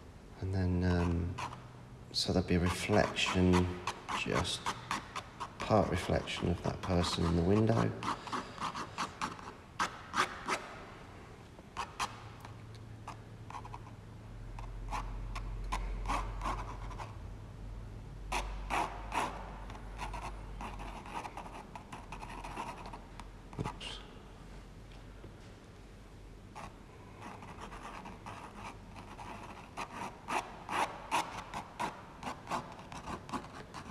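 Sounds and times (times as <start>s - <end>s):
pen scratching on paper: 14.9s - 17.1s, 18.3s - 19.4s, 20.0s - 23.0s, 26.6s - 33.9s.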